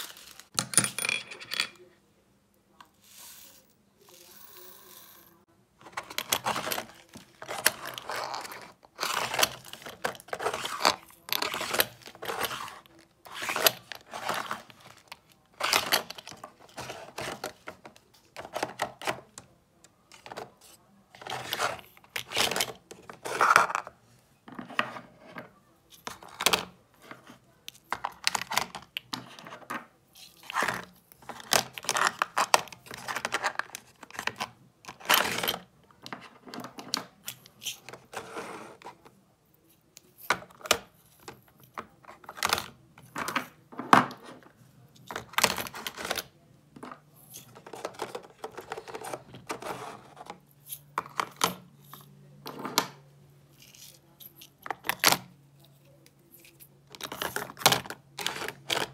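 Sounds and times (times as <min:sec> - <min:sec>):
plastic drawer clattering: 0:05.8 - 0:19.4, 0:45.1 - 0:50.4, 0:57.0 - 0:58.9.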